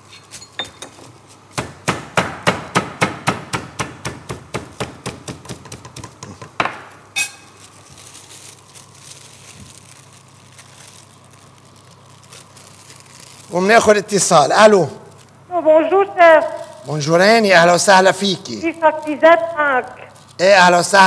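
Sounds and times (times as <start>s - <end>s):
meat pounder striking meat: 1.6s - 6.9s.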